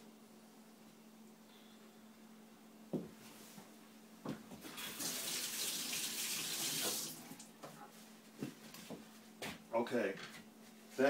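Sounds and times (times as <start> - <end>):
kitchen tap running: 4.7 - 7.5.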